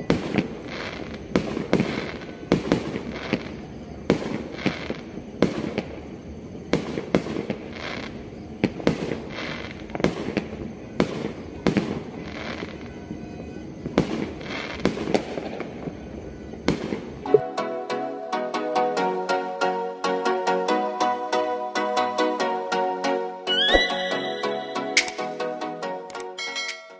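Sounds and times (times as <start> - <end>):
distant fireworks booming: 0.0 - 17.2
fireworks crackling hiss: 0.0 - 17.3
electronic music: 23.5 - 26.2.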